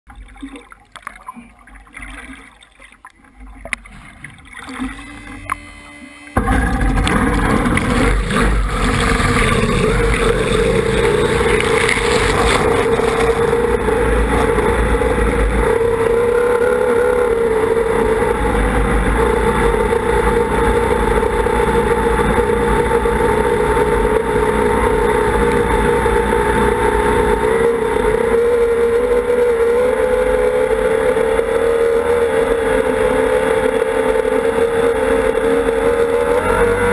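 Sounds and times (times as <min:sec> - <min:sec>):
water lapping: 0:00.1 - 0:20.8
outboard engine running at speed: 0:00.1 - 0:36.9.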